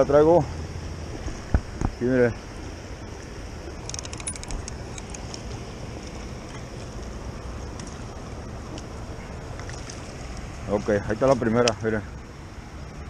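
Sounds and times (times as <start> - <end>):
river water flowing: 0.0 - 13.0
wind on microphone: 1.0 - 2.0.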